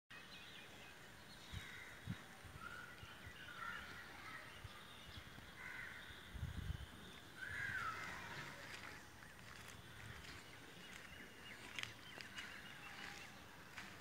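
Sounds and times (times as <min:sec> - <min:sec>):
crow cawing: 0:05.6 - 0:06.0.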